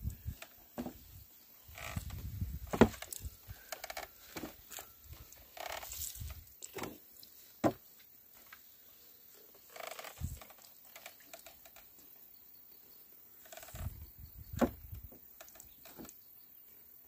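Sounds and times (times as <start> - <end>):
wooden oil press knocking: 1.8 - 3.1, 14.6 - 14.8.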